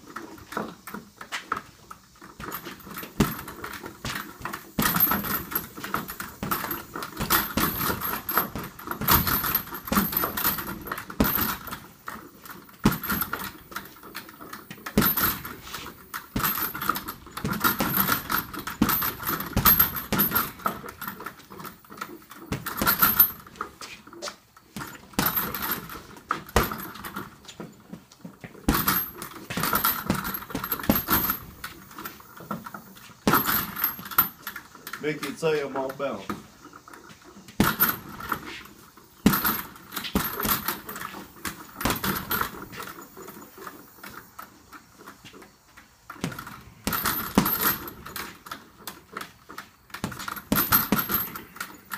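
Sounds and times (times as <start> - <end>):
metallic jingling of bag hardware: 2.2 - 23.7, 28.6 - 35.1, 46.2 - 51.9
punches thudding on heavy bag: 2.4 - 12.0, 12.6 - 14.0, 14.7 - 21.3, 22.5 - 23.6, 24.8 - 27.4, 28.6 - 32.6, 33.2 - 34.4, 37.6 - 38.5, 39.2 - 42.9, 46.2 - 48.5, 50.0 - 51.6.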